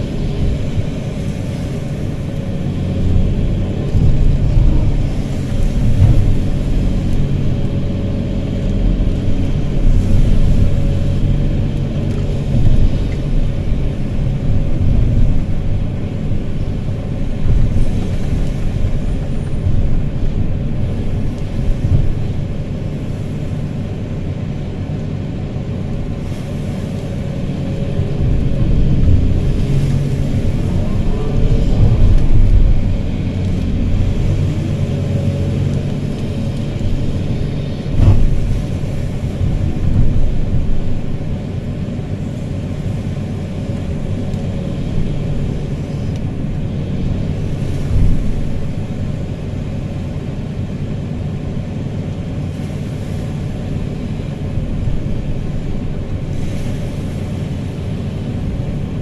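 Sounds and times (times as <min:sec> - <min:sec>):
excavator diesel engine under load: 0:00.0 - 0:59.0.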